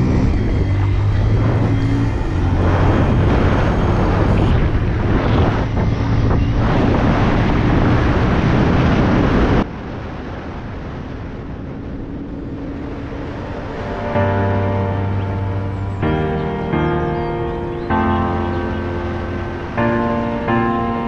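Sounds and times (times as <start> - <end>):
motorcycle engine hum: 0.0 - 21.0
wind buffeting microphone: 0.0 - 21.0
music: 0.1 - 5.9, 13.3 - 21.0.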